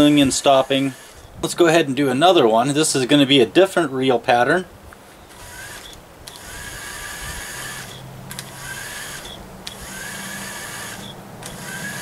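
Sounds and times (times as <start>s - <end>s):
small electric motors whirring: 0.0s - 1.4s, 5.2s - 12.0s
motor restart click: 7.6s - 12.0s.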